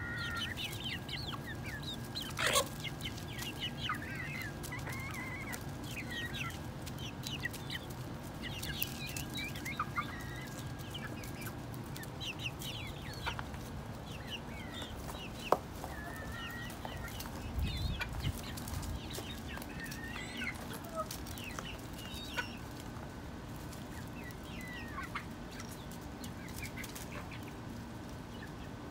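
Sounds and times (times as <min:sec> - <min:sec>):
chickens clucking: 0:00.0 - 0:28.9
chicks peeping: 0:00.0 - 0:28.9.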